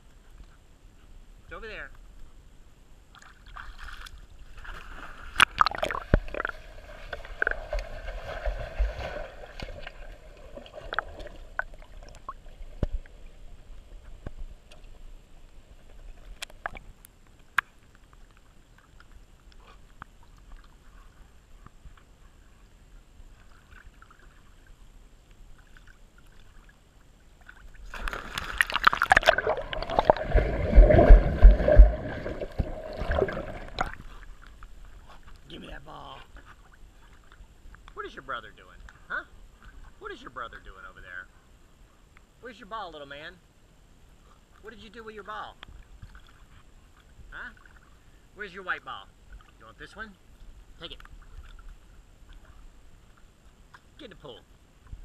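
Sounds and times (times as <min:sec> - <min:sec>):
water sloshing and gurgling: 0:03.0 - 0:37.9, 0:45.6 - 0:48.3, 0:49.1 - 0:54.0.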